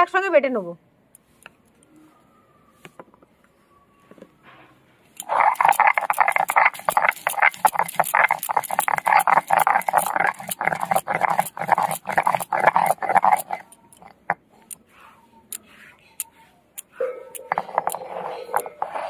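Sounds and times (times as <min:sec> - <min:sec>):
stone roller grinding on stone: 0:05.2 - 0:19.0.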